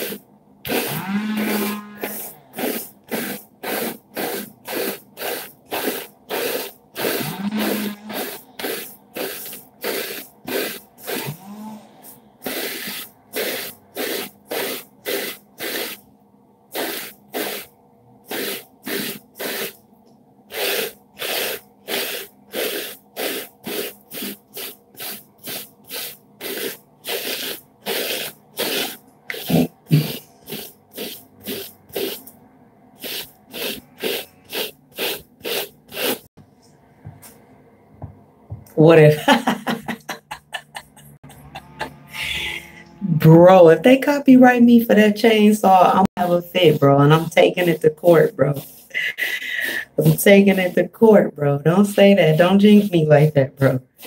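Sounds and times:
hairbrush swishing through hair: 0.0s - 16.0s, 18.3s - 19.8s, 20.5s - 32.3s, 33.0s - 36.3s, 45.6s - 53.1s.

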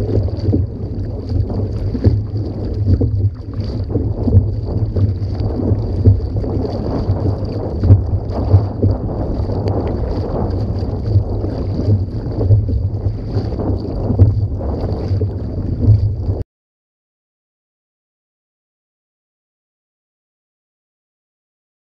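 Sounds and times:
paddle splashing water: 0.0s - 16.4s
water washing along hull: 0.0s - 16.4s
wind buffeting microphone: 0.0s - 16.4s.

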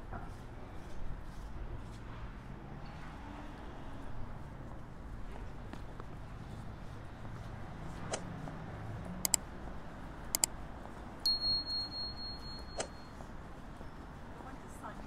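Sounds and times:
low street hum: 0.0s - 15.0s
sharp clicks: 9.2s - 9.5s
high electronic beep: 11.3s - 13.1s.

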